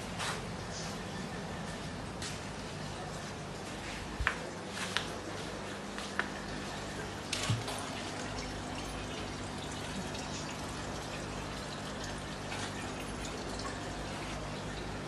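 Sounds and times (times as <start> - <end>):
electrical hum: 0.0 - 15.0
water trickling and bubbling: 4.6 - 15.0.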